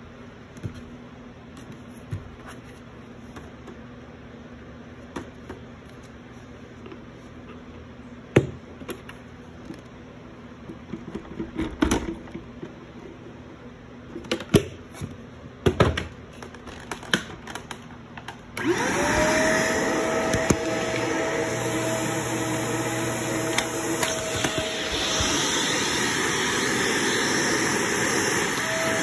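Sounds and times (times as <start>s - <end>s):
vacuum motor whine: 18.6s - 29.0s.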